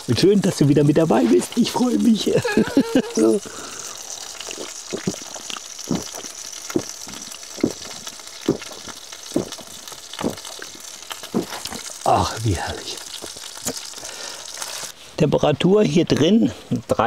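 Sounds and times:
person gulping a drink: 0:02.4 - 0:11.9.

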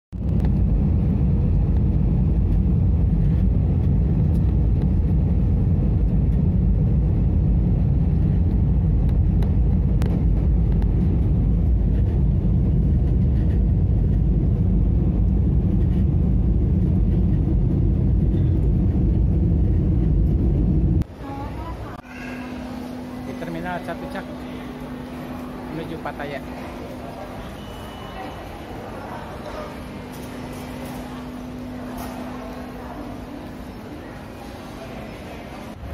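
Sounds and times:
airliner engine rumble in cabin: 0:00.2 - 0:23.4.

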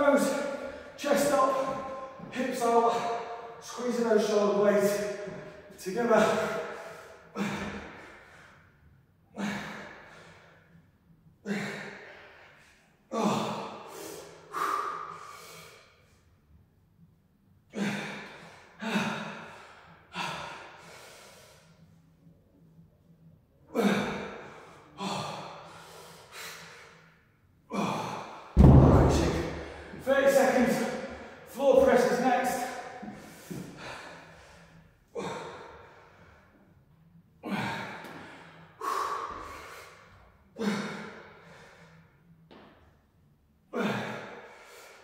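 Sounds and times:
man exhaling forcefully: 0:13.1 - 0:15.8, 0:29.0 - 0:30.0.

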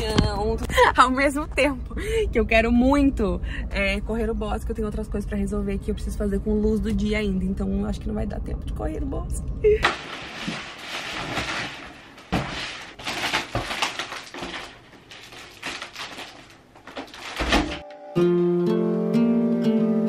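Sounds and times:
foil balloons crinkling: 0:09.8 - 0:17.8
acoustic guitar music: 0:17.7 - 0:20.0.

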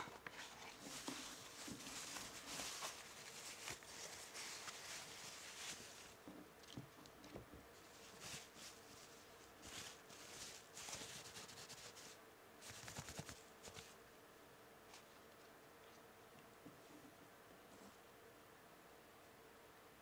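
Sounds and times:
tissue paper rustling: 0:00.0 - 0:06.2, 0:07.8 - 0:14.0.

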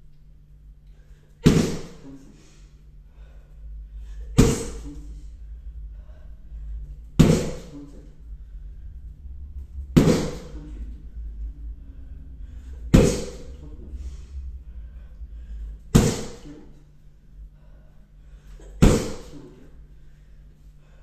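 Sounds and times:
kicks smacking a kick shield: 0:01.4 - 0:02.0, 0:04.4 - 0:04.8, 0:07.2 - 0:07.7, 0:10.0 - 0:10.5, 0:15.9 - 0:16.4, 0:18.8 - 0:19.3.

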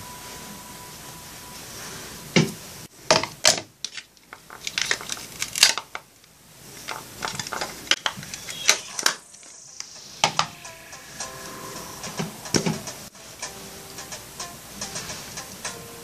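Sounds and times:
faint music: 0:00.0 - 0:02.9, 0:07.9 - 0:16.0.

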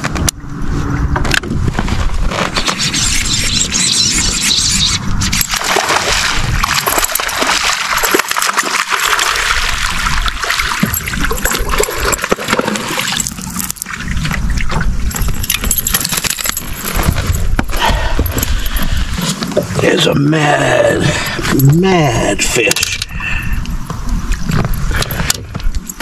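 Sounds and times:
fishing reel cranking: 0:02.6 - 0:05.5
fish splashing in water: 0:02.6 - 0:17.2.

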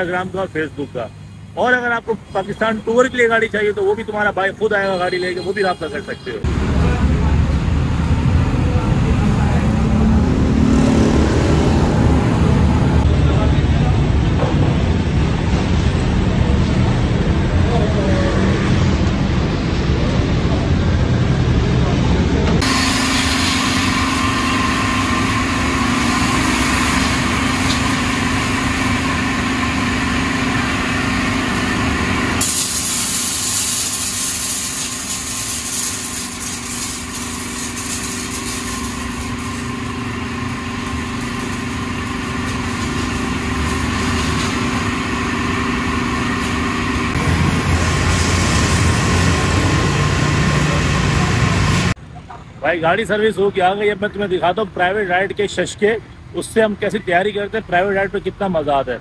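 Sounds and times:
machinery humming: 0:04.8 - 0:52.0.

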